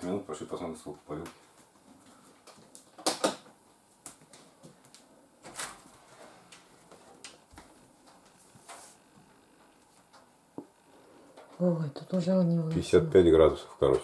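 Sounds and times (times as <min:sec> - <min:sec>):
soft rustle: 0:07.8 - 0:09.9.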